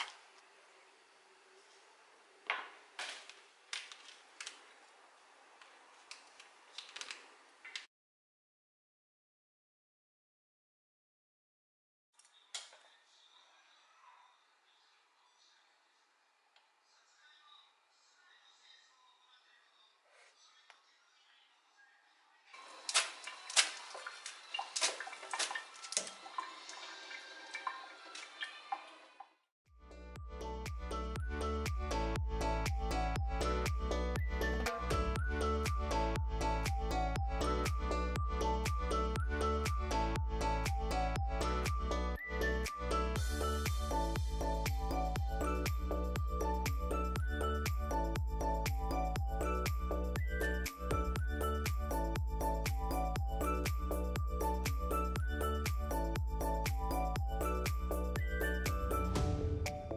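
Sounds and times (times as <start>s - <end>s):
plastic packet handling: 3.0s - 4.9s, 5.6s - 7.8s
water splashing into metal sink: 22.6s - 29.3s.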